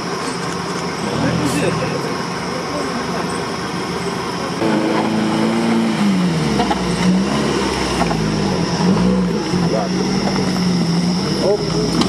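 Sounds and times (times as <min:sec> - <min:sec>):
engine revving under load: 0:01.0 - 0:02.4, 0:04.5 - 0:12.0.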